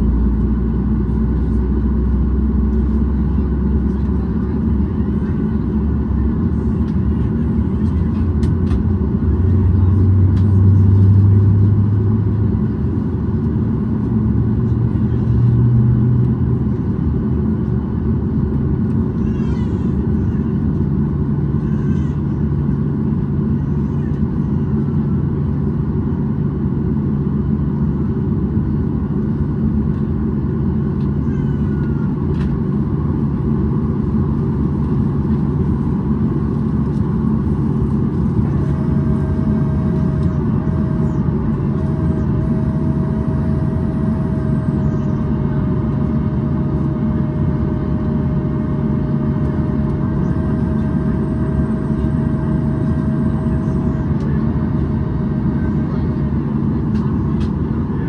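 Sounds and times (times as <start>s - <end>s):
jet engines low drone: 0.0s - 58.0s
steady whine: 22.4s - 58.0s.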